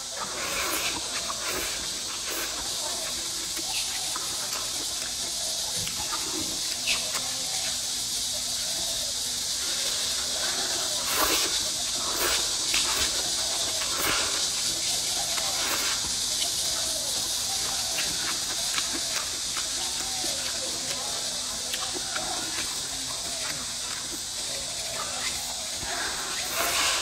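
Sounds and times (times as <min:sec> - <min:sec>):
steady high hiss: 0:00.0 - 0:27.0.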